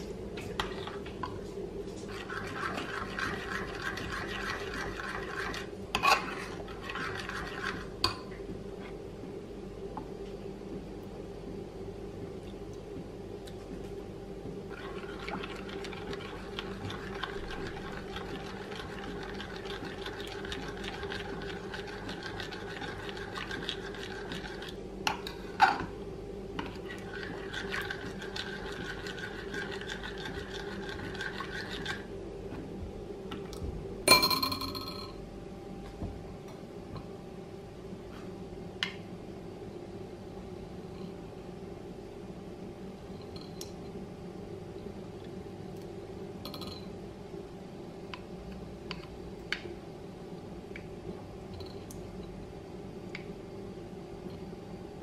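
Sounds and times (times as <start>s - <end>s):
spoon stirring batter in bowl: 0.4s - 8.3s, 14.7s - 25.9s, 26.6s - 32.1s.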